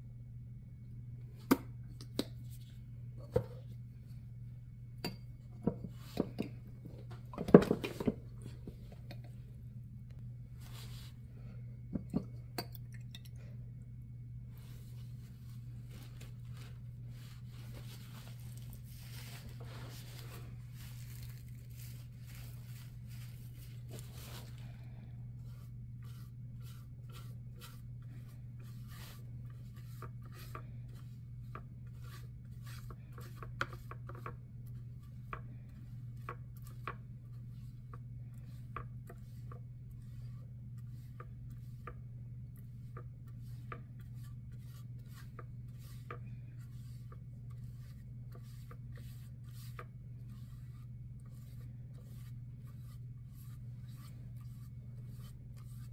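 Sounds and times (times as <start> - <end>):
steady low hum: 0.0 - 55.9
paintbrush scrubbing a board: 14.6 - 55.9.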